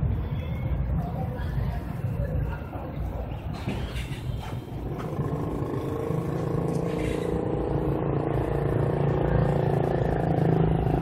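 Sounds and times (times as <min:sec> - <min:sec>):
forklift engine and hydraulic hum: 0:03.2 - 0:09.6.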